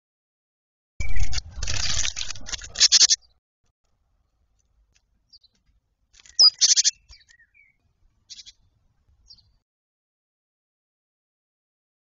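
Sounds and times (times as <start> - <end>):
camera scraping and tumbling: 1.0 - 3.2, 3.8 - 7.4
bird chirp: 1.0 - 3.4, 5.1 - 9.6.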